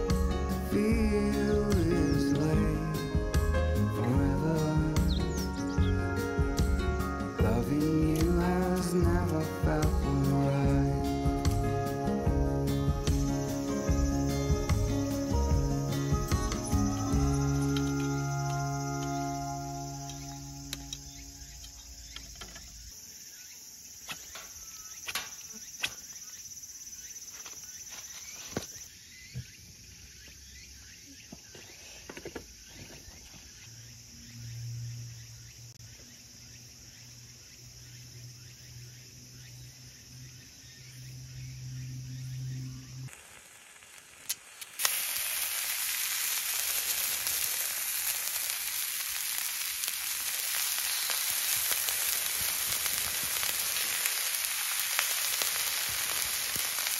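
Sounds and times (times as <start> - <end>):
meat sizzling on a griddle: 7.4 - 22.5, 42.9 - 56.9.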